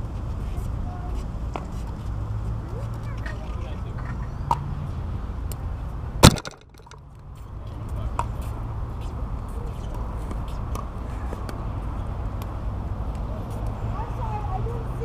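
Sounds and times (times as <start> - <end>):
paddles hitting balls: 6.2 - 7.0
pickleball sharp crack: 6.2 - 7.0
outdoor rumble: 6.2 - 7.3.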